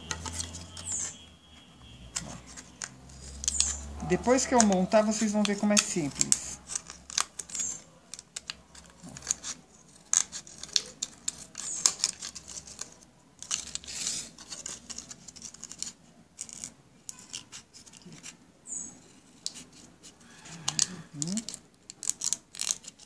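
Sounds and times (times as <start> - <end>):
plastic crackling: 0.0 - 23.0
scissors snipping plastic: 20.6 - 23.0.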